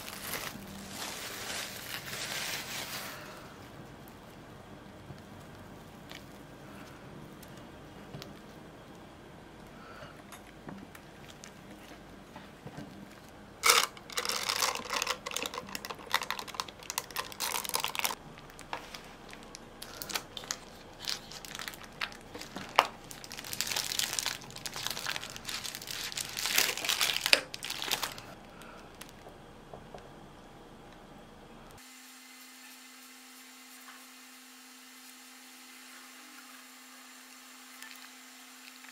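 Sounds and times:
plastic bag crinkling: 0:00.0 - 0:03.6, 0:13.6 - 0:29.3.

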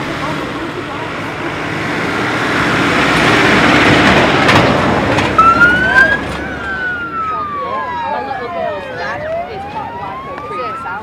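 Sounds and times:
rushing noise of moving vehicle: 0:00.0 - 0:11.0
vehicle siren: 0:05.3 - 0:11.0.

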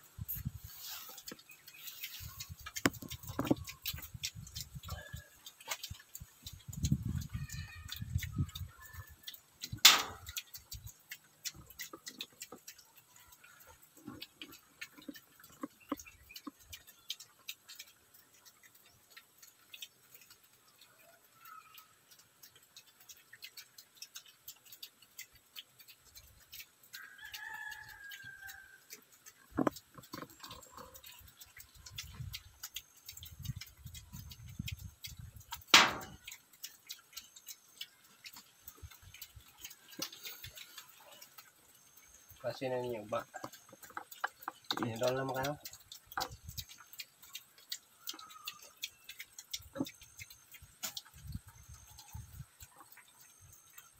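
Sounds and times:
piglets chewing and smacking: 0:00.0 - 0:53.9
rapid small clicks: 0:01.1 - 0:53.9
high animal call: 0:07.2 - 0:09.3.

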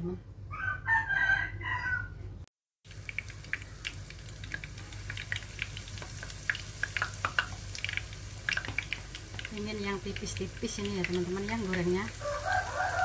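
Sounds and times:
batter sizzling in hot oil: 0:02.8 - 0:13.0
sharp crackling pops: 0:02.9 - 0:12.3.

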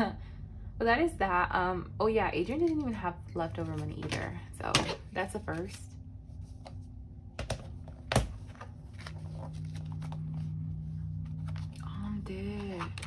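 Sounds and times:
steady low hum: 0:00.0 - 0:13.0
paper money rustling: 0:07.8 - 0:13.0.

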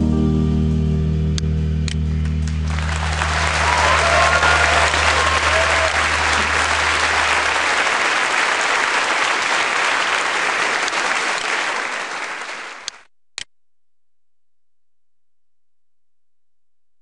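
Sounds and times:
audience applause: 0:02.2 - 0:13.0.

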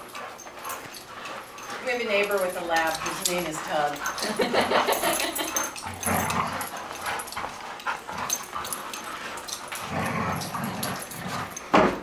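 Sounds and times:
dogs play-growling: 0:00.0 - 0:12.0.

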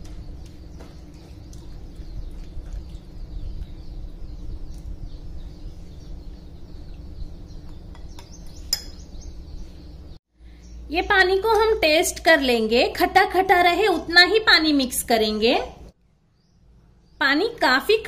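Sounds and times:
birds chirping: 0:00.0 - 0:12.6, 0:16.2 - 0:18.0.

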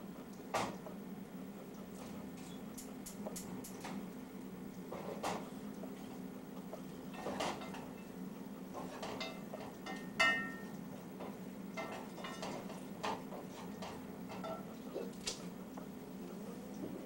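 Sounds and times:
steady low hum: 0:00.0 - 0:17.0
dishes and utensils clicking: 0:08.8 - 0:14.7
ringing dish clink: 0:09.2 - 0:10.7.

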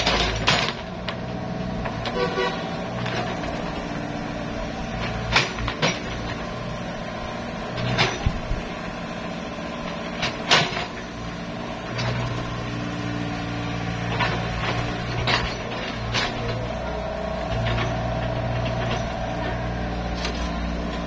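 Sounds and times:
excavator bucket clanks: 0:00.0 - 0:03.8, 0:04.9 - 0:06.5, 0:10.0 - 0:11.1, 0:14.0 - 0:21.0
excavator diesel engine: 0:00.0 - 0:21.0.

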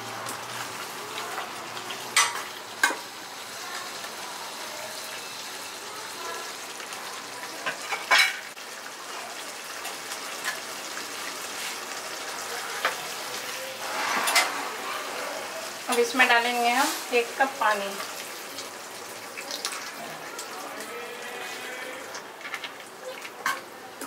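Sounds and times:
vegetables sizzling in pan: 0:00.0 - 0:24.0.

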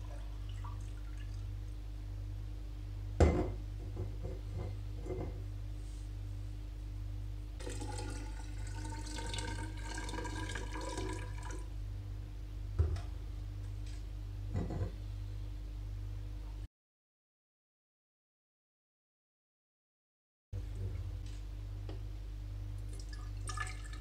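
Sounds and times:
steady low hum: 0:00.0 - 0:16.7, 0:20.6 - 0:24.0
water pouring into glass beaker: 0:07.6 - 0:11.6, 0:23.0 - 0:24.0.

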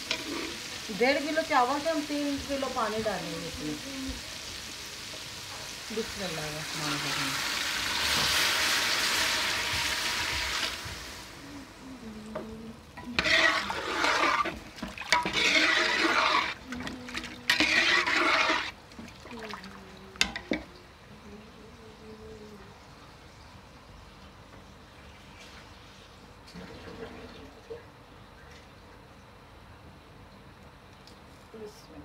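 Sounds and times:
water pouring into pot: 0:13.2 - 0:19.7.

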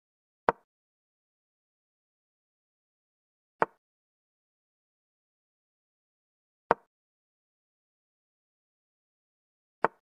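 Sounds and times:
chess move click: 0:03.6 - 0:03.8.

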